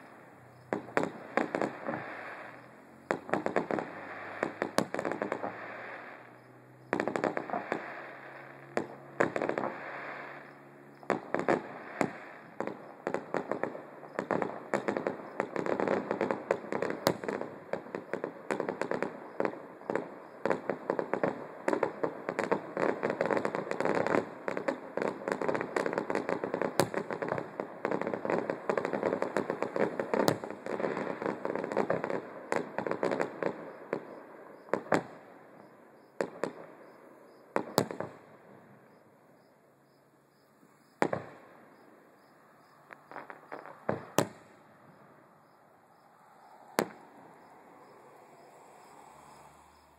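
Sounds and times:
distant fireworks bangs and crackle: 0:00.0 - 0:49.9.

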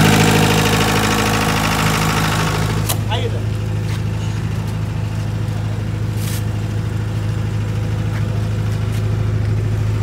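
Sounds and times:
diesel generator humming: 0:00.0 - 0:10.0.

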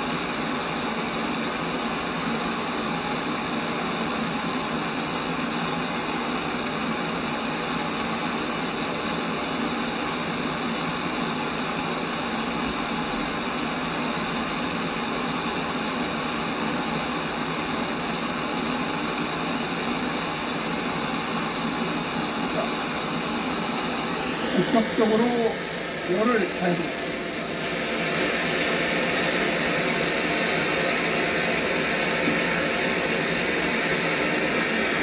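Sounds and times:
gas torch flame hissing: 0:00.0 - 0:35.0.

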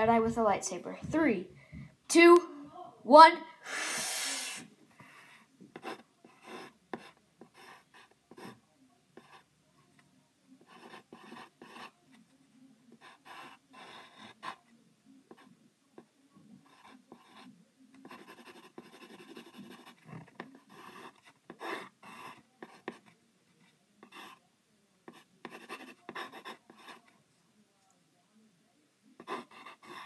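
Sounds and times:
pencil scratching on paper: 0:05.0 - 0:08.6, 0:09.2 - 0:09.5, 0:10.6 - 0:12.1, 0:12.9 - 0:24.4, 0:25.1 - 0:27.2, 0:29.2 - 0:30.0.

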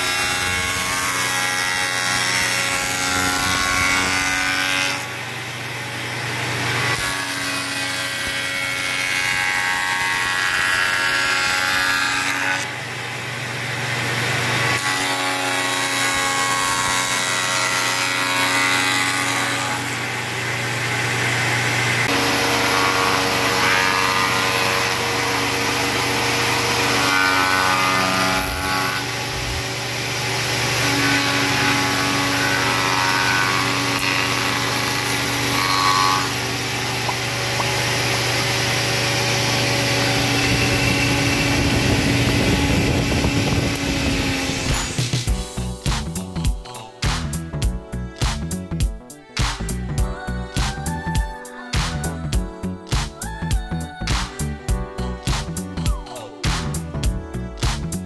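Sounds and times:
spindle moulder cutting wood: 0:22.0 - 0:29.6, 0:30.7 - 0:45.3.

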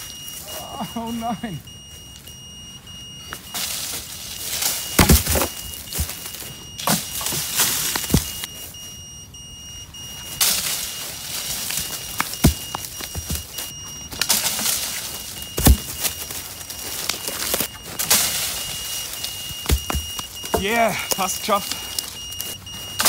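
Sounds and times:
steady high-pitched beep: 0:00.0 - 0:23.0
stick striking tree branches: 0:03.3 - 0:08.5, 0:10.2 - 0:23.0.

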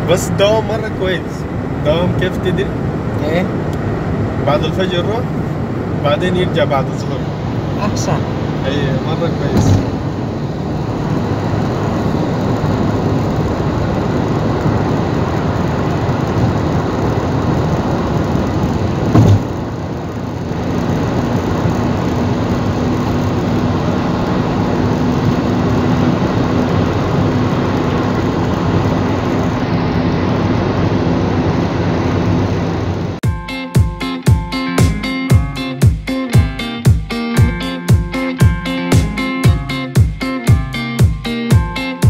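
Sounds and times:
car road and engine noise: 0:00.0 - 0:42.0
short thump: 0:09.5 - 0:10.0, 0:19.1 - 0:19.6.

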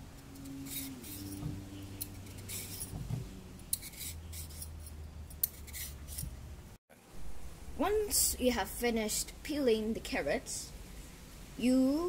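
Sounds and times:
peeler scraping a carrot: 0:00.4 - 0:03.0, 0:03.6 - 0:06.3.

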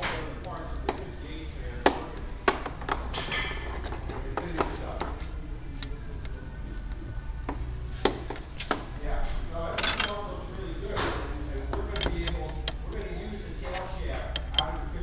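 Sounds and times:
low steady hum: 0:00.0 - 0:15.0
metal clicks and clinks: 0:09.8 - 0:10.4, 0:11.8 - 0:14.8.

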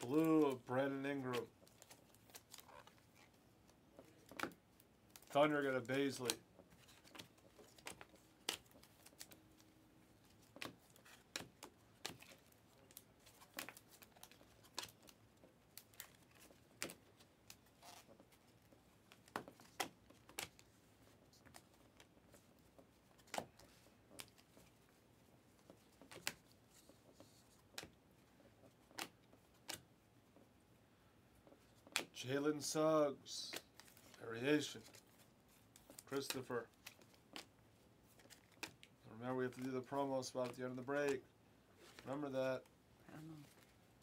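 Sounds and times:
cards clicking and sliding: 0:05.2 - 0:24.8, 0:25.6 - 0:28.0, 0:28.6 - 0:29.9, 0:31.4 - 0:32.2, 0:33.5 - 0:39.7.

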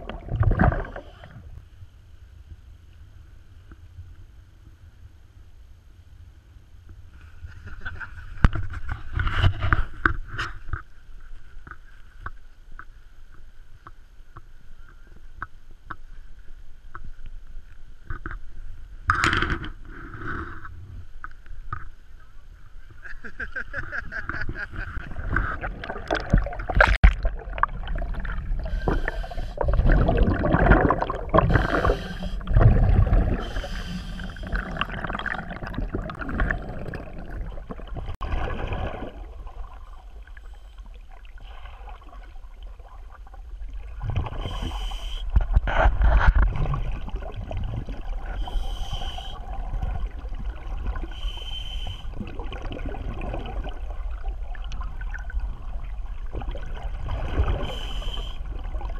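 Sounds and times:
regulator bubbles gurgling underwater: 0:00.0 - 0:01.5, 0:25.0 - 0:58.9
water splash: 0:25.0 - 0:39.8
diver inhaling through regulator: 0:28.6 - 0:29.7, 0:31.4 - 0:35.1, 0:44.3 - 0:45.4, 0:48.2 - 0:49.6, 0:51.1 - 0:52.2, 0:57.5 - 0:58.5.

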